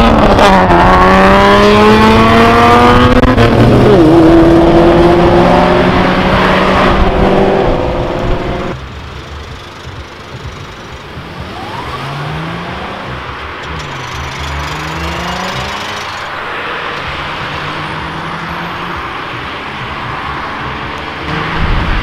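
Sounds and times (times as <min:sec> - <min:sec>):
car engine accelerating: 0:00.0 - 0:22.0
tyre and road noise: 0:00.0 - 0:22.0
car passing: 0:11.2 - 0:22.0.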